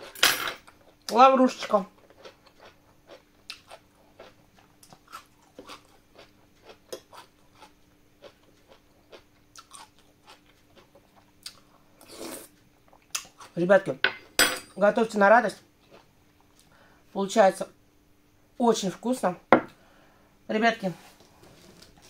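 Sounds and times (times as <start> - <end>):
chewing crisp cabbage: 1.7 - 13.6.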